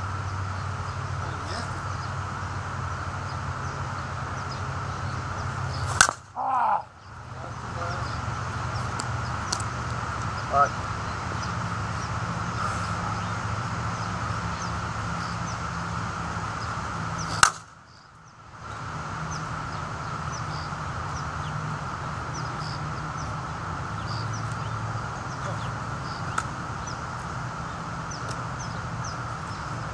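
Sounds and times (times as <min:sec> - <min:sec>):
steady low hum: 0:00.0 - 0:29.9
bat cracking against softball: 0:05.8 - 0:06.4, 0:08.8 - 0:10.0, 0:17.2 - 0:17.8, 0:26.2 - 0:26.6.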